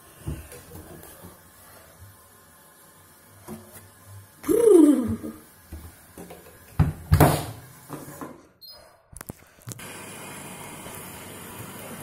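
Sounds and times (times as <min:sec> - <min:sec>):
water filling washing machine: 0:00.0 - 0:08.6, 0:09.8 - 0:12.0
knocks in washing machine drum: 0:06.8 - 0:07.6.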